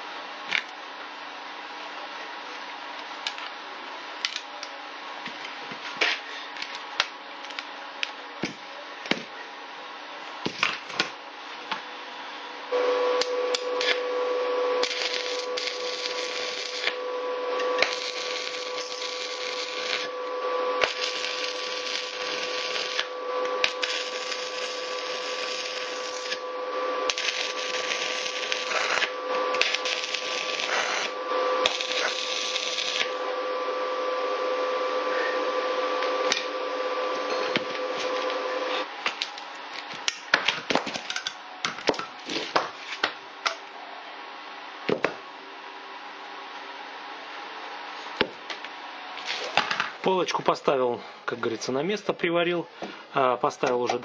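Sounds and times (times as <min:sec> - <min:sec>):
welding machine hum: 0:12.7 - 0:40.2, 0:49.2 - 0:49.8
electric arc welding crackling: 0:13.2 - 0:33.3, 0:49.2 - 0:49.6.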